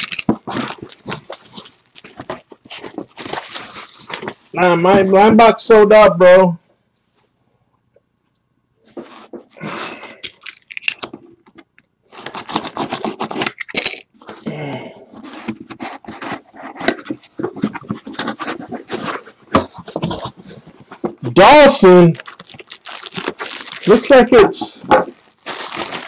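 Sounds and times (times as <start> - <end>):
cardboard tearing and crunching: 0.0 - 4.5, 12.1 - 14.4, 22.1 - 26.0.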